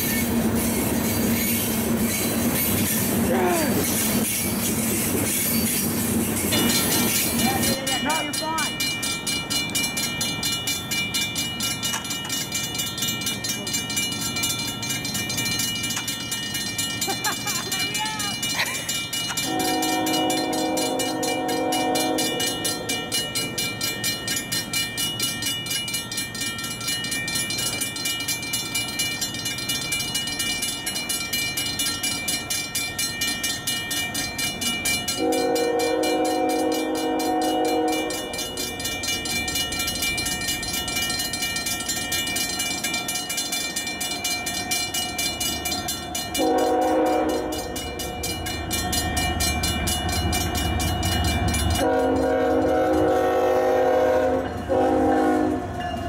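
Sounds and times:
grade crossing bells ringing: 0.0 - 56.0
locomotive horn blasts: 19.4 - 22.8, 35.2 - 38.3, 46.4 - 47.8, 51.8 - 55.7.

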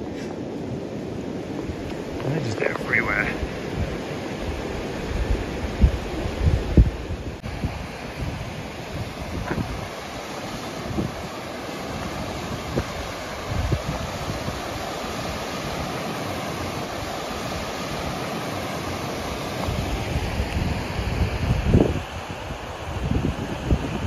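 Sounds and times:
fast river rushing: 0.0 - 24.0.

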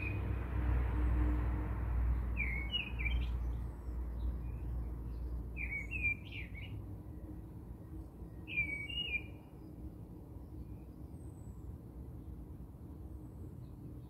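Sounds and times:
birds chirping: 2.1 - 6.8, 8.3 - 11.7
distant high bird calls: 2.4 - 3.6, 5.6 - 6.8, 8.3 - 9.8.

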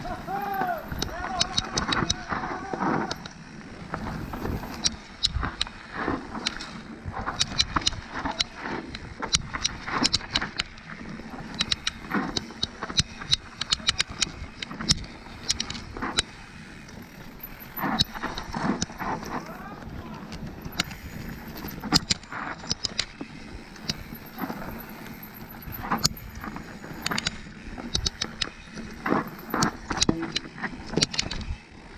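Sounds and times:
bike clicks and rattles: 0.0 - 31.9
wind: 0.0 - 31.9
tyres rumbling: 10.9 - 31.4.

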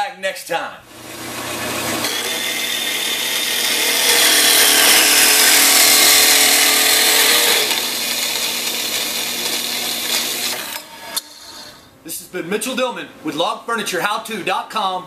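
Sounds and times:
bandsaw cutting metal tubing: 0.9 - 11.9.

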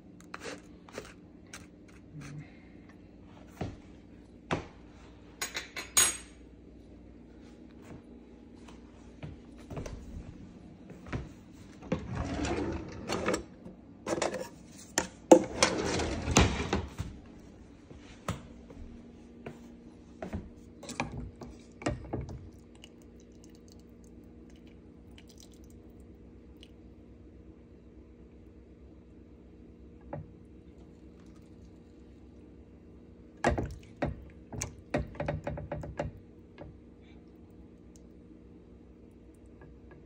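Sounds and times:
steady low hum: 0.0 - 40.0
kitchen knocks and clatter: 33.4 - 36.7.

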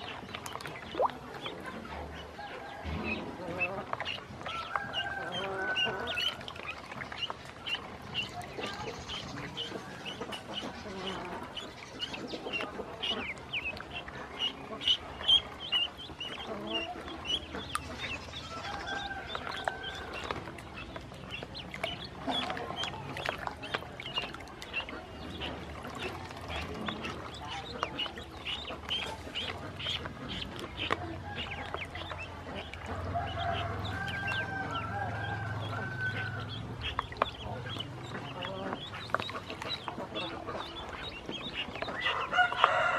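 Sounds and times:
ducklings peeping: 0.0 - 42.9
ducklings splashing in water: 0.0 - 42.9.

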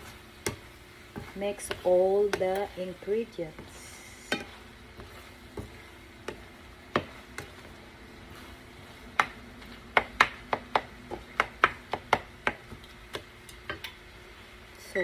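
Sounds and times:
spatula scraping frying pan: 0.0 - 9.8.

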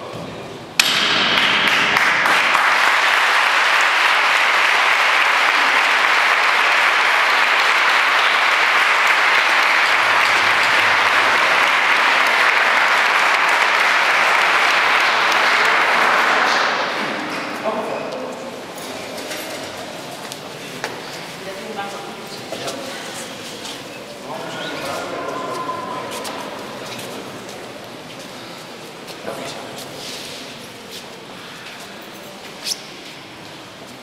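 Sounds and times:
crowd applauding: 1.3 - 17.0.

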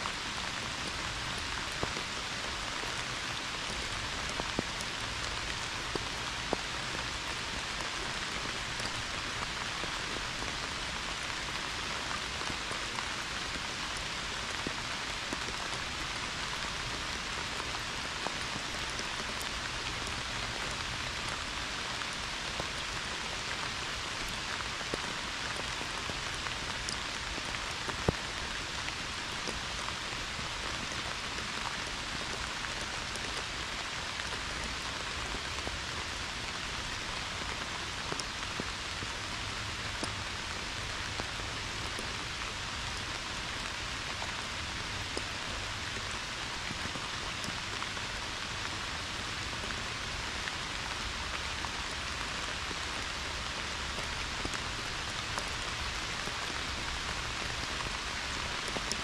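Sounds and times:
heavy rain pouring: 0.0 - 59.0.

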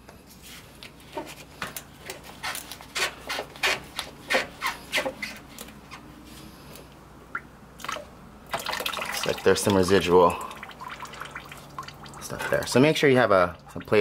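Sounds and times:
rubber hose squeaky scrapes: 2.2 - 6.1.

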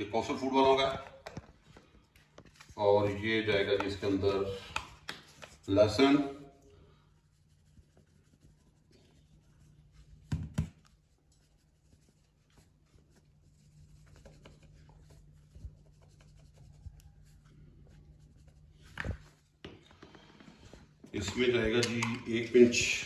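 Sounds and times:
faint scratching and rustling: 10.9 - 23.0.

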